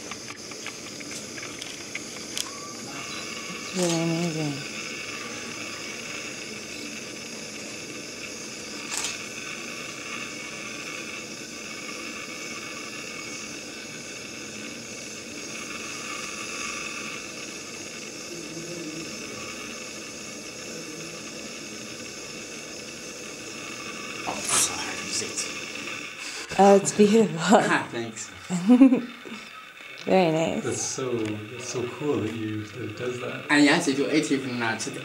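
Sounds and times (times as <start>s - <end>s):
steady hiss: 0.0s - 35.0s.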